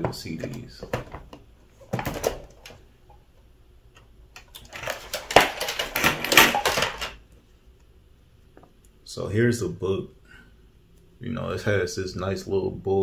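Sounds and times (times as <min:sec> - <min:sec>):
rummaging and clattering objects: 0:00.1 - 0:02.8, 0:04.4 - 0:07.2.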